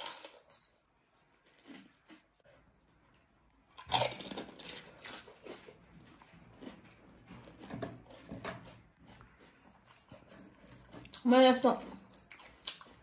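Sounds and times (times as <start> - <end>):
person crunching crisp food: 0.0 - 2.4, 3.8 - 13.0
chewing with small crunches: 0.0 - 13.0.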